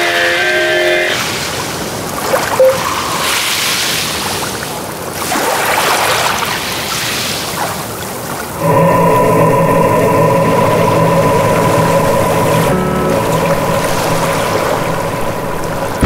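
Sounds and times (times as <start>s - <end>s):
ocean waves rushing: 0.0s - 16.0s
short tone: 2.5s - 3.3s.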